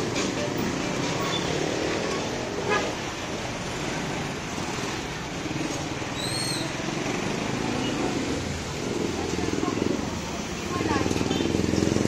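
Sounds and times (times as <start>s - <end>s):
busy street traffic: 0.0s - 12.0s
motorcycle tricycle engine running: 6.9s - 12.0s.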